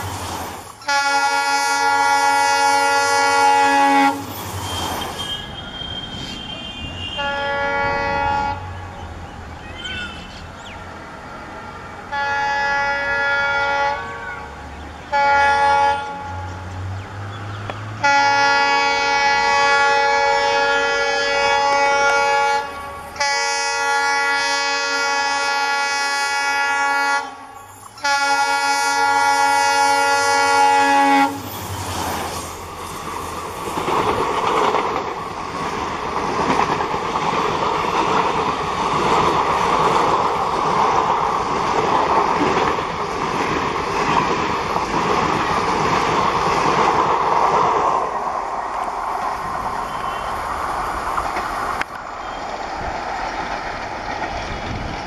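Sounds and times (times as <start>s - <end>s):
train coaches rumbling past: 0.0s - 55.0s
locomotive air horn blasts: 0.8s - 4.3s, 5.2s - 8.7s, 11.6s - 16.5s, 18.0s - 31.6s, 49.8s - 50.4s
wheels clacking over rail joints: 31.5s - 55.0s.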